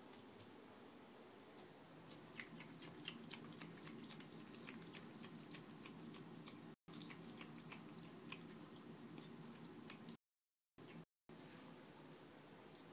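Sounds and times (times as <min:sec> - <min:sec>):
animal chewing with crunches: 0:02.0 - 0:10.2.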